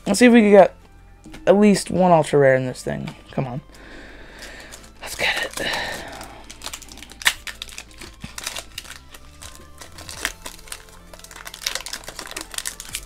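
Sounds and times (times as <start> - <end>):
quiet background music: 0.0 - 13.0
foil wrapper crinkling: 4.4 - 13.0.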